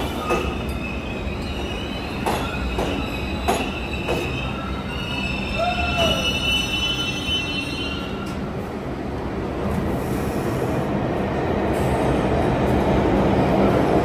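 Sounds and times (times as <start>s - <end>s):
train wheel squeal: 0.0s - 8.5s
train wheels rumbling: 0.0s - 14.0s.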